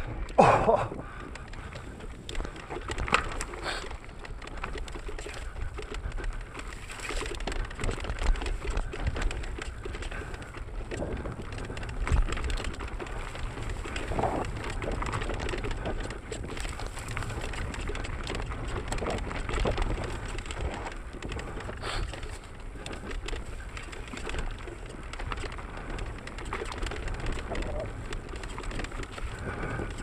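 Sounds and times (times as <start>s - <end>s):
bike rattling over bumps: 0.0s - 30.0s
wind rumble on camera: 0.0s - 30.0s.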